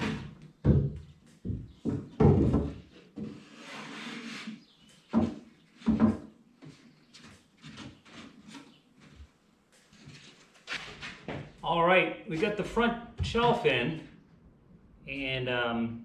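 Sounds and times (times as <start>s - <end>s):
wood scraping: 0.0s - 0.9s, 1.8s - 9.2s
wood knocking on wood: 0.0s - 3.4s, 5.0s - 6.3s.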